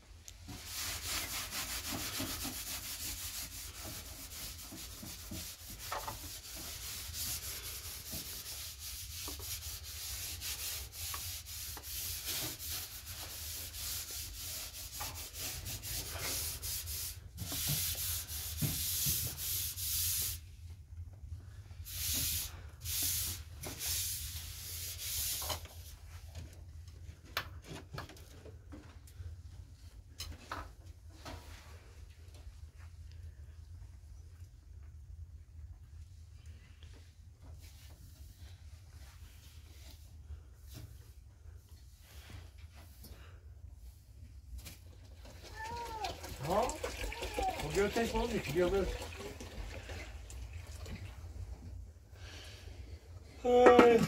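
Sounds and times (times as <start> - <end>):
scrubbing stovetop by hand: 0.4 - 20.4, 21.9 - 26.0, 45.5 - 49.9.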